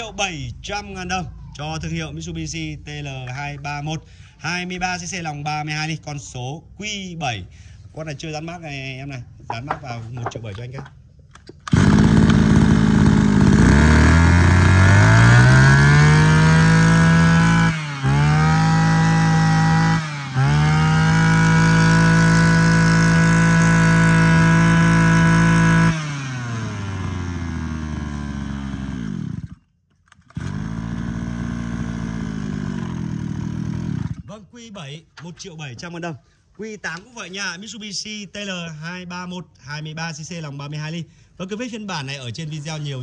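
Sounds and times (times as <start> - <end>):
two-stroke brush cutter engine: 11.6 - 34.3.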